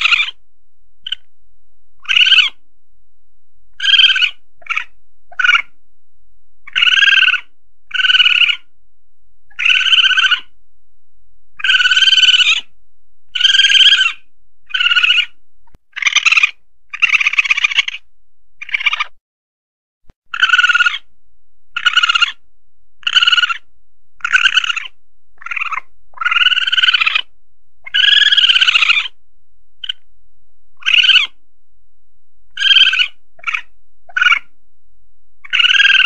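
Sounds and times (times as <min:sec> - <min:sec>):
shrill civet calls: 0:00.0 - 0:00.4, 0:01.0 - 0:01.3, 0:02.0 - 0:02.6, 0:03.7 - 0:05.8, 0:06.7 - 0:08.7, 0:09.5 - 0:10.6, 0:11.6 - 0:12.7, 0:13.3 - 0:18.0, 0:18.6 - 0:19.2, 0:20.3 - 0:21.1, 0:21.7 - 0:22.4, 0:23.0 - 0:29.2, 0:29.8 - 0:30.0, 0:30.8 - 0:31.4, 0:32.5 - 0:34.5, 0:35.4 - 0:36.0.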